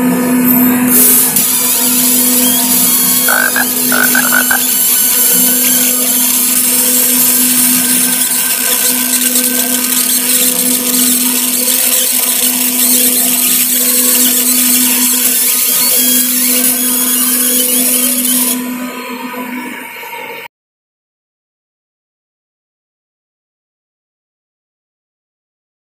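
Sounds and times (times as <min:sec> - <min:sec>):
laser marking machine hum: 0:00.0 - 0:19.6
high hissing buzz: 0:00.8 - 0:19.6.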